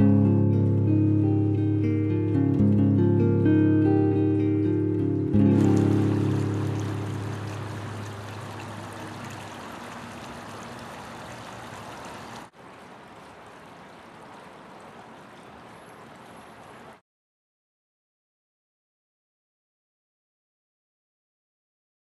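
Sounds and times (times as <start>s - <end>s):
acoustic guitar music: 0.0s - 8.4s
water pouring into fountain bowl: 5.3s - 17.0s.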